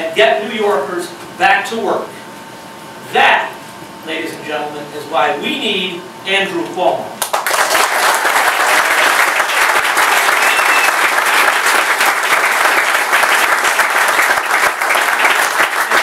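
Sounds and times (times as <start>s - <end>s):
crowd applauding: 7.2s - 16.0s.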